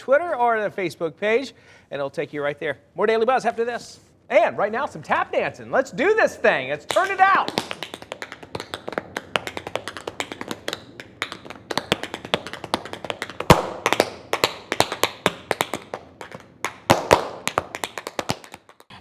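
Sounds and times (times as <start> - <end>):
tap shoes clicking on floor: 6.9 - 18.9.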